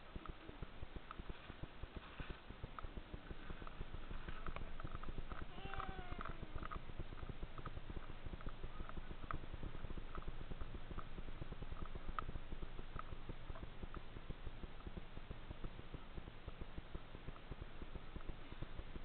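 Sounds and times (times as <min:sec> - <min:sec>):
faint clicks: 0:00.0 - 0:19.0
ship engines rumbling: 0:02.9 - 0:14.2.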